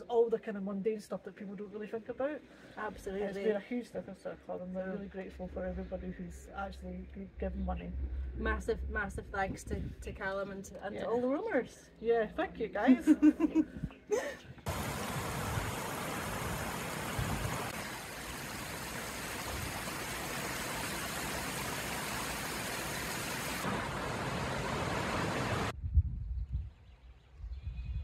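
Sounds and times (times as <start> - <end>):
low rumble: 5.1 - 10.3
river rushing over rocks: 14.7 - 25.7.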